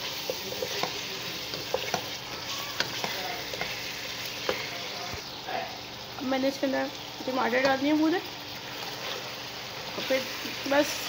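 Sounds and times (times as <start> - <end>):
meat sizzling in oil: 0.0 - 11.0
spatula scraping a pan: 8.6 - 11.0.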